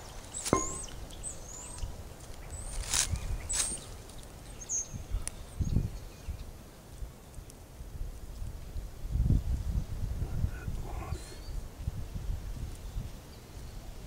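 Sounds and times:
small birds chirping: 0.0s - 6.6s, 10.3s - 14.0s
dull thump: 0.5s - 0.9s
iron dumbbells clinking together: 0.5s - 0.9s.

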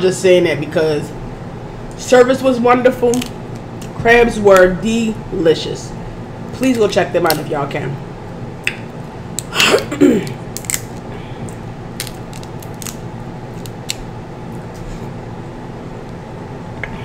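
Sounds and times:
crab shell cracking: 3.1s - 4.0s, 8.6s - 14.1s.

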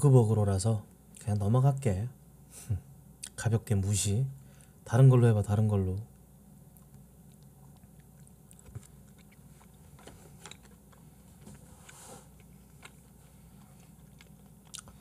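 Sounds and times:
low steady hum: 0.0s - 15.0s
wet chewing: 6.8s - 11.5s, 12.3s - 15.0s.

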